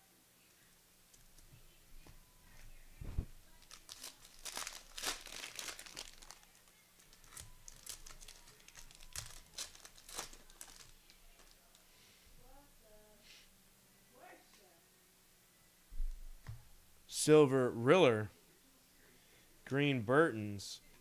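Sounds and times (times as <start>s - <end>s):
soft thump: 3.0s - 3.3s
plastic wrapper crinkling: 3.0s - 11.8s.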